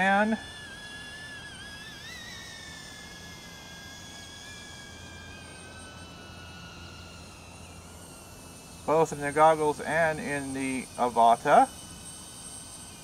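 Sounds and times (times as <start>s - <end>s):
drone propellers whining: 0.0s - 13.0s.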